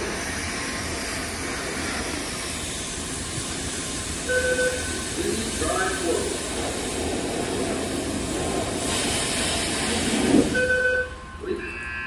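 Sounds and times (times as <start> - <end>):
loud rushing noise: 5.0 - 10.6
short electronic beep: 10.6 - 12.0.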